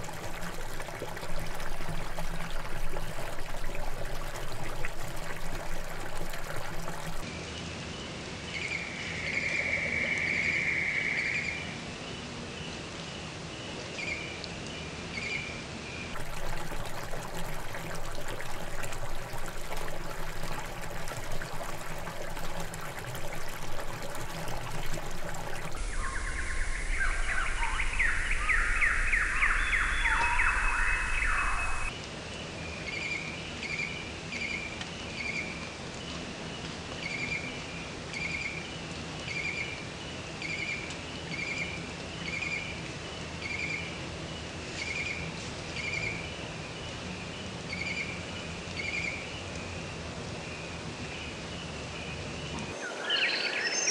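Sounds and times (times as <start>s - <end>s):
trickling water: 0.0s - 7.3s, 16.2s - 31.9s.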